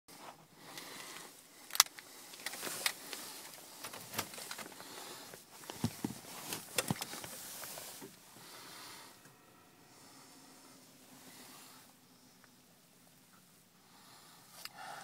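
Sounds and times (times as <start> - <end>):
rustling inside car: 2.3 - 9.3.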